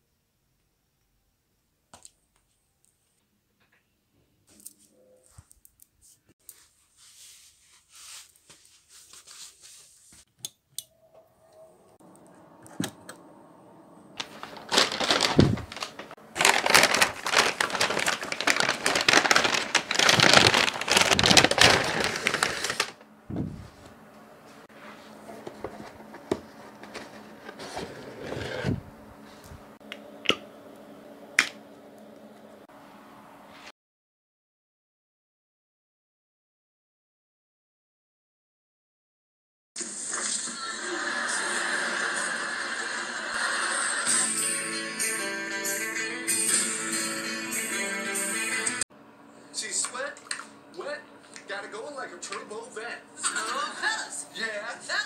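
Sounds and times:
paper bag rustling and crinkling: 0:14.2 - 0:23.9, 0:25.0 - 0:28.8.

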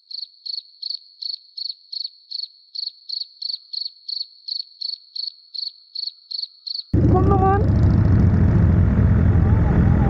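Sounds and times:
insect high-pitched trill: 0:00.0 - 0:07.0
insect pulsed chirps: 0:00.0 - 0:07.0.

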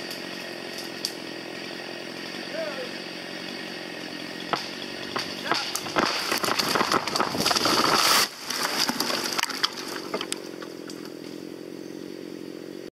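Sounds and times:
twigs snapping: 0:00.0 - 0:01.2, 0:04.5 - 0:11.1
chainsaw idling: 0:00.0 - 0:12.8
tree crashing down: 0:04.4 - 0:11.0
branches swishing: 0:05.2 - 0:10.1.

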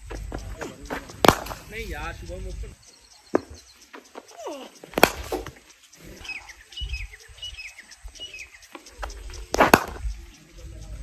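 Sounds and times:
bird chirping: 0:00.0 - 0:11.0
cricket bat hitting ball: 0:00.7 - 0:01.8, 0:03.3 - 0:03.6, 0:04.9 - 0:05.6, 0:09.5 - 0:10.0.

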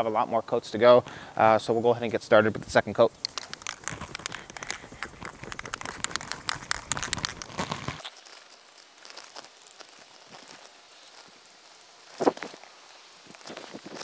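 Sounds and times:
plastic sheet crinkling underfoot: 0:03.1 - 0:14.0
aerosol can spraying hiss: 0:03.2 - 0:14.0.

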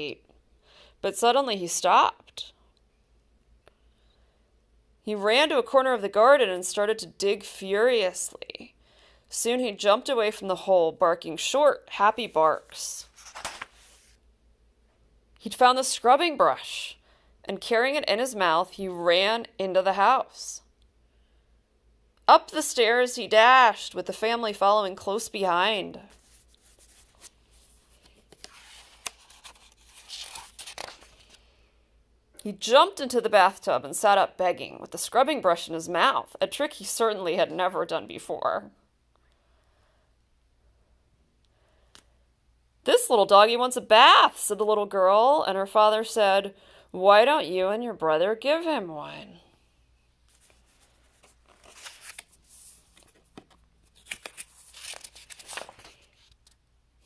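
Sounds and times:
hand brushing paper page: 0:12.5 - 0:14.2, 0:26.1 - 0:31.3, 0:50.3 - 0:56.3.

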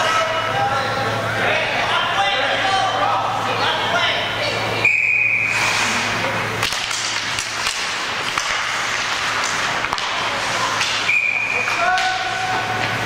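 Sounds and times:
skates hissing on ice: 0:05.4 - 0:06.3
hockey sticks and puck clacking: 0:05.8 - 0:13.0.

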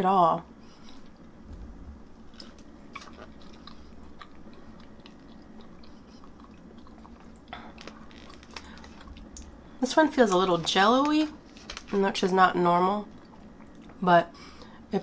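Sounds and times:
chewing food: 0:02.3 - 0:09.7, 0:13.0 - 0:14.0.

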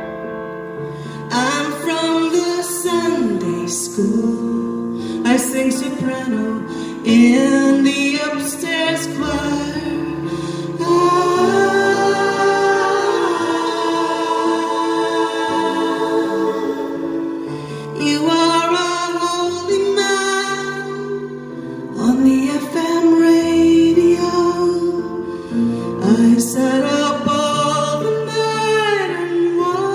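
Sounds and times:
piano chords: 0:00.0 - 0:29.9
backing singers harmonizing: 0:09.0 - 0:18.8.

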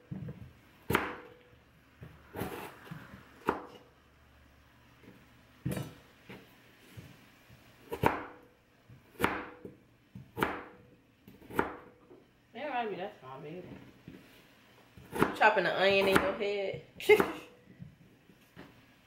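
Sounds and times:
knife chopping on cutting board: 0:00.9 - 0:01.4, 0:03.4 - 0:03.8, 0:07.9 - 0:08.4, 0:09.1 - 0:11.9, 0:15.0 - 0:15.4.

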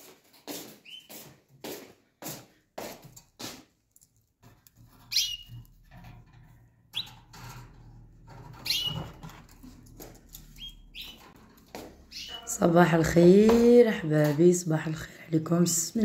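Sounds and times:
canaries chirping: 0:00.6 - 0:01.3, 0:04.9 - 0:05.9, 0:06.9 - 0:14.1.

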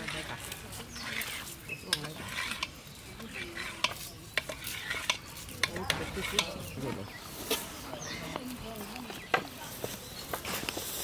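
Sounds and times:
soft scraping of blade: 0:00.0 - 0:07.8.

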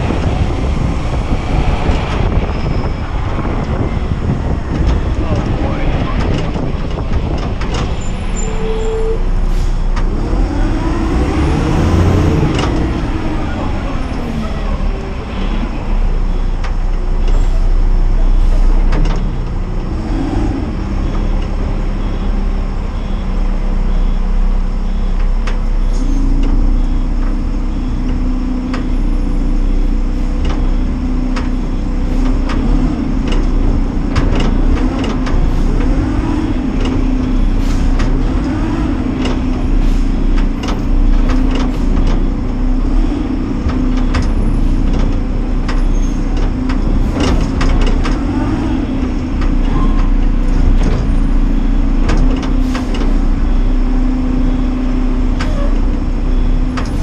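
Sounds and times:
garbage truck engine running: 0:00.0 - 0:57.0
metal clanks and knocks: 0:43.6 - 0:48.4.

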